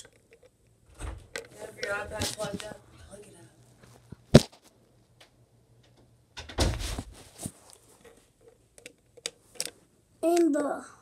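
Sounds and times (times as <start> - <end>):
rustling handling noise: 1.3 - 2.8, 6.6 - 8.6.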